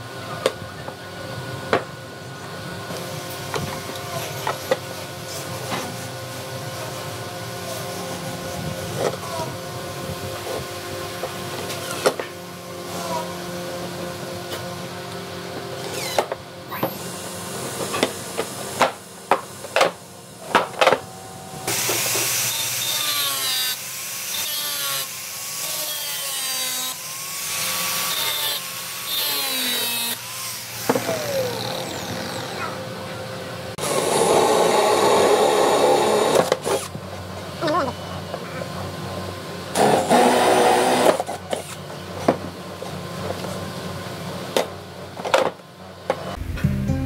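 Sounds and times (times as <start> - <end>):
drill boring through wood: 20.8 - 32.6, 33.8 - 36.9, 39.8 - 41.8
angle grinder cutting metal: 21.6 - 32.6.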